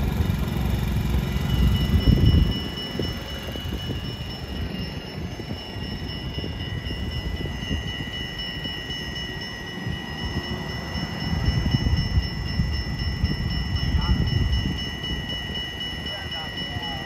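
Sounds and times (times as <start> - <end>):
high-pitched whine: 0.0 - 17.0
low street rumble: 0.0 - 17.0.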